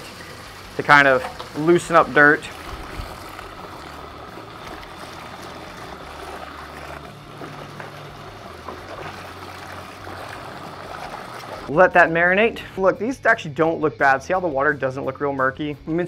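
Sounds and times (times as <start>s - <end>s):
soapy water sloshing: 0.0s - 11.7s.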